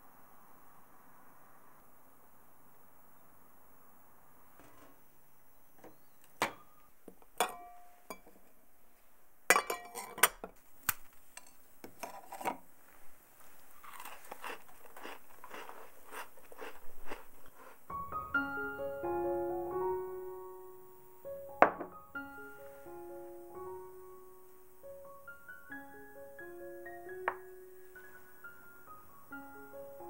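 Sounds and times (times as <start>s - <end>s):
cookies crunching: 13.4s - 17.9s.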